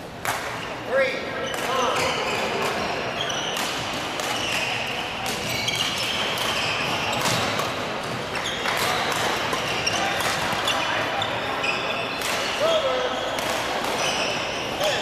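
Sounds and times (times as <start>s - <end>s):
background chatter: 0.8s - 15.0s
racket hitting shuttlecock: 3.5s - 10.8s, 13.4s - 14.4s.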